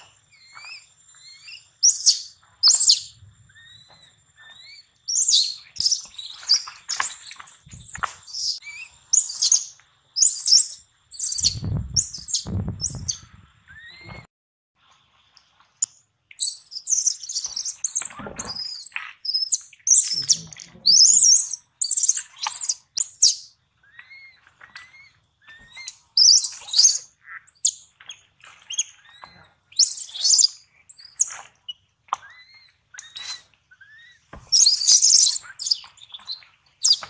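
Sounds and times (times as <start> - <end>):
baby monkey screaming: 7.8 - 13.2, 16.4 - 23.4, 33.2 - 36.0
low thuds: 11.4 - 13.4.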